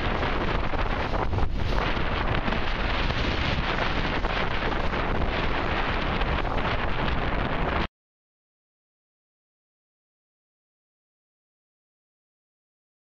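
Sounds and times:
water splashing along bow: 0:00.0 - 0:07.9
wind buffeting microphone: 0:00.0 - 0:07.9.

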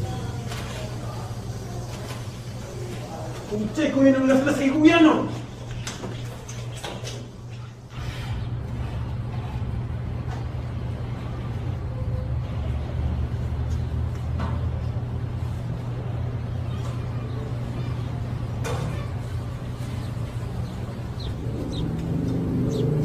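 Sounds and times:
vehicle engine low drone: 0:19.2 - 0:23.0.

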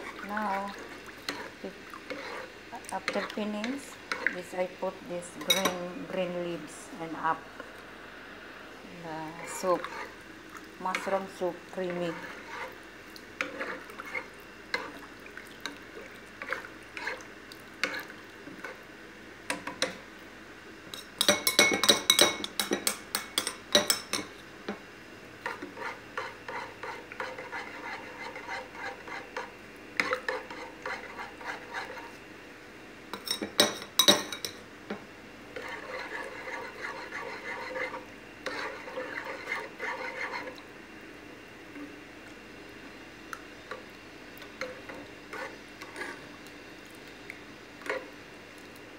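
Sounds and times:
spoon stirring and scraping pot: 0:00.0 - 0:04.5, 0:05.4 - 0:06.2, 0:09.2 - 0:10.2, 0:10.8 - 0:12.8, 0:13.4 - 0:15.8, 0:16.4 - 0:18.8, 0:20.9 - 0:24.8, 0:25.4 - 0:32.2, 0:33.1 - 0:40.6, 0:44.4 - 0:46.4, 0:47.8 - 0:48.1.

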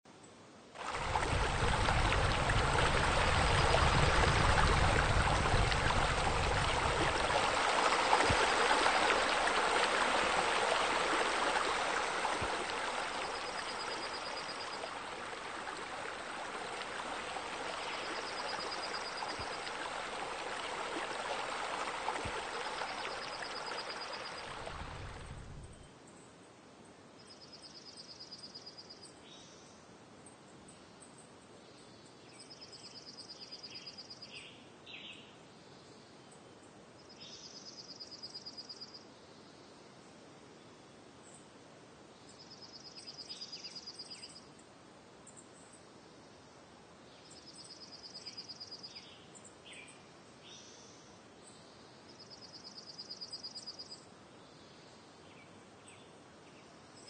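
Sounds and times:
fountain water splashing: 0:00.8 - 0:25.7.

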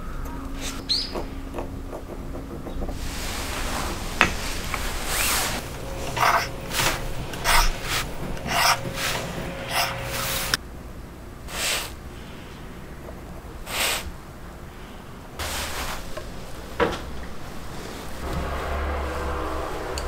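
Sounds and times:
pencil strokes on wood: 0:03.0 - 0:10.6.

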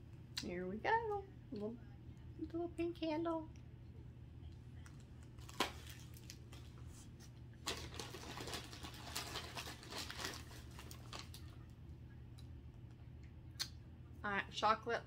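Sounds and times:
low steady hum: 0:00.0 - 0:15.0
plastic packaging crinkling: 0:05.2 - 0:06.8, 0:07.6 - 0:11.6.

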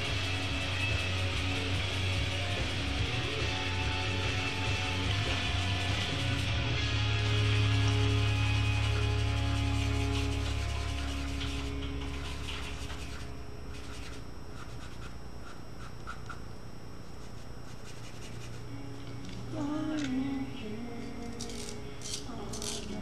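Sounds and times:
pencil scratching on paper: 0:08.7 - 0:16.4, 0:17.2 - 0:18.7.

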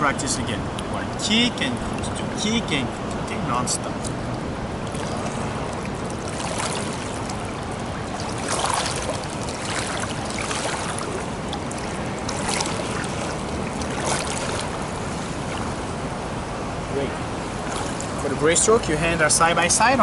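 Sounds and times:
pool water splashing: 0:00.0 - 0:20.0
swimmer kick splashes: 0:04.9 - 0:16.0, 0:17.6 - 0:18.2.

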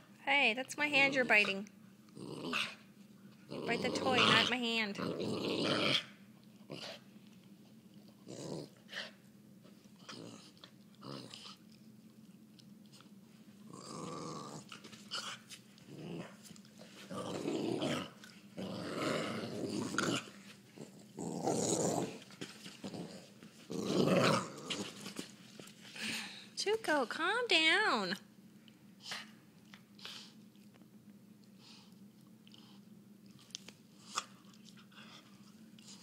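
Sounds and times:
dog growling playfully: 0:01.2 - 0:07.0, 0:08.2 - 0:09.2, 0:10.0 - 0:11.6, 0:13.6 - 0:25.2.

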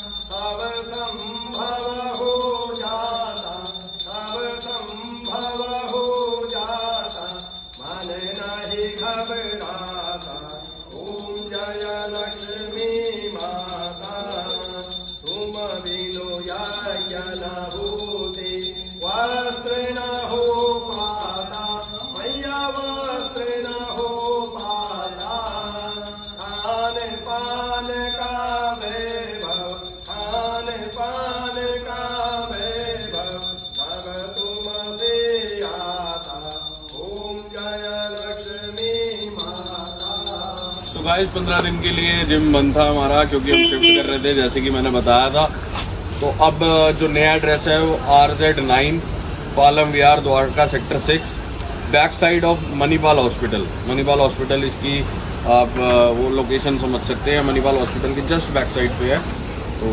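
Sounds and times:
man chanting: 0:00.0 - 0:45.5.

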